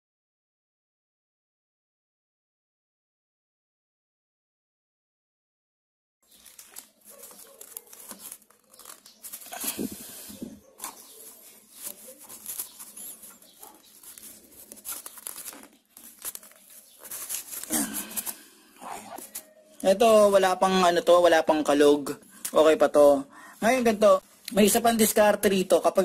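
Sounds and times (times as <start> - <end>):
rubber rustling and rubbing: 6.2 - 19.5
small clicks and scrapes: 6.3 - 9.9, 10.8 - 18.4.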